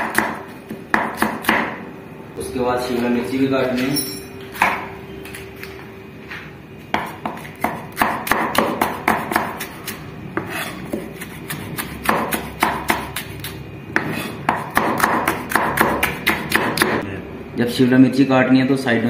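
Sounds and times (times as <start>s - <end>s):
knife chopping on cutting board: 0.0s - 1.8s, 6.9s - 17.0s.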